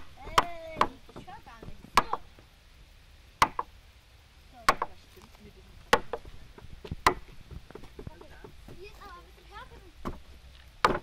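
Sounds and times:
sharp knocks: 0.0s - 2.4s, 3.4s - 3.7s, 5.9s - 8.9s, 10.0s - 11.0s.

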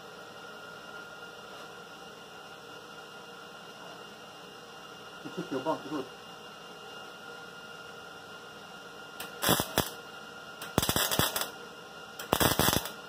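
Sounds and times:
welder arc crackling: 9.2s - 10.0s, 10.6s - 11.6s, 12.2s - 13.0s.

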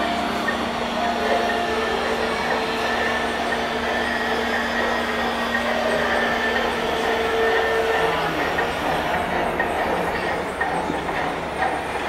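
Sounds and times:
low locomotive hum: 0.0s - 12.0s
model train rolling rumble: 0.0s - 12.0s.

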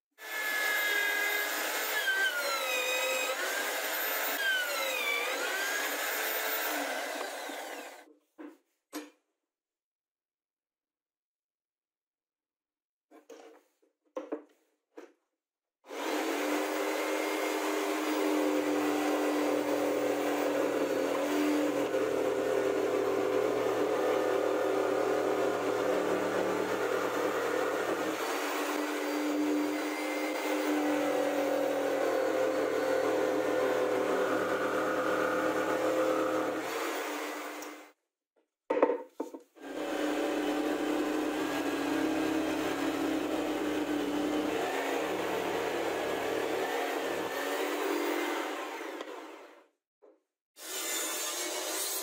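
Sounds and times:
power tool motor whining: 0.2s - 8.0s.

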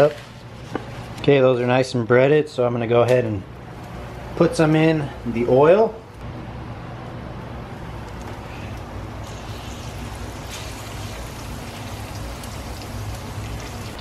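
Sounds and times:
food frying in hot oil: 9.2s - 14.0s.

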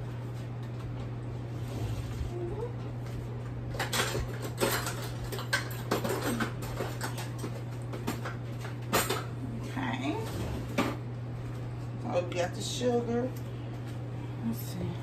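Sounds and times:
steady low hum: 0.0s - 15.0s
utensils clinking on countertop: 3.8s - 9.3s.

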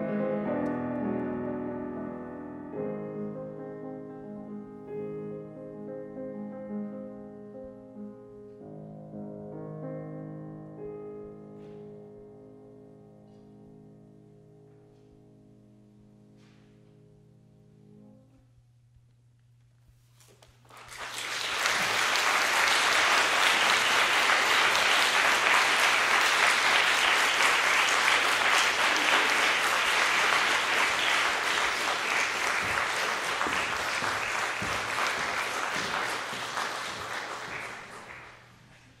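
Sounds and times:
audience applauding: 20.6s - 39.0s.

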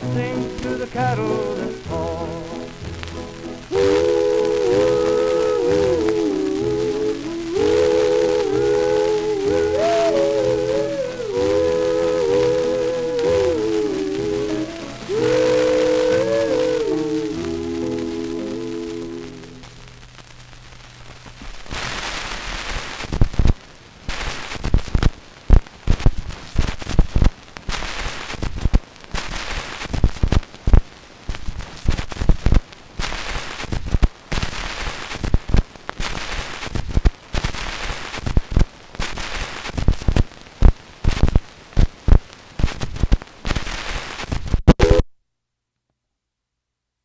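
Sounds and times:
record surface hiss and crackle: 0.0s - 47.0s
loud record clicks: 19.6s - 45.0s.

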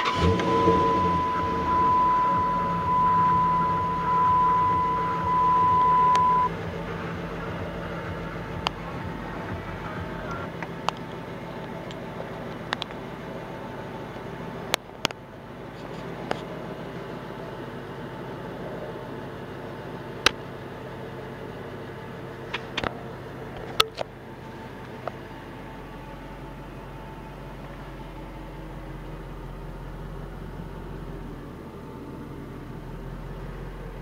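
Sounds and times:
high electronic warning tone: 0.0s - 6.6s
car engine idling: 0.0s - 34.0s.

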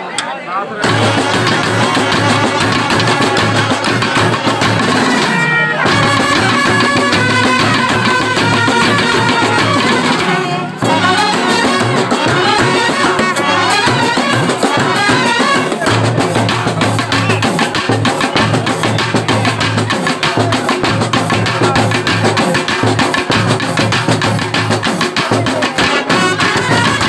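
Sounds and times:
brass playing melody: 0.8s - 16.9s, 25.8s - 27.0s
drums beaten fast: 0.8s - 27.0s.

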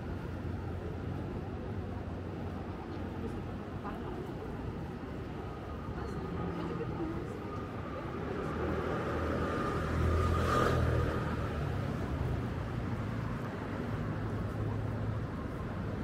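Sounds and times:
road traffic rumble: 0.0s - 16.0s
vehicle passing close: 8.2s - 12.1s.

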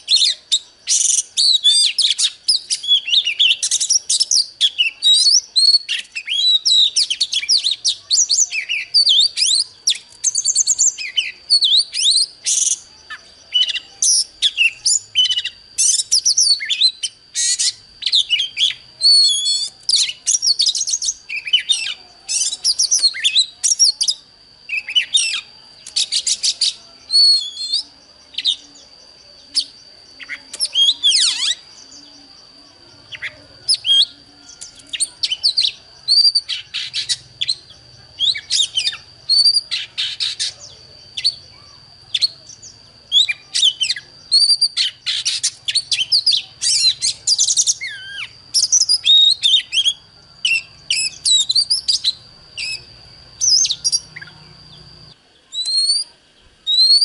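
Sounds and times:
bird song: 0.0s - 57.0s.

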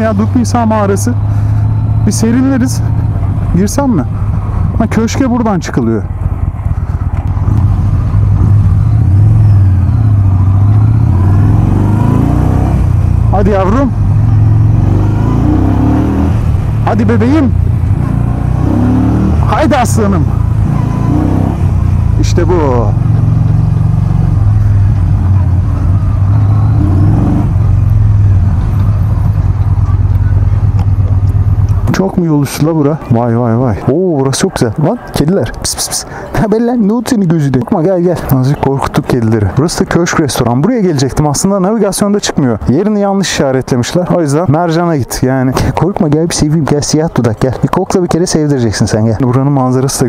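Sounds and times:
motorcycle engine running: 0.0s - 33.1s.

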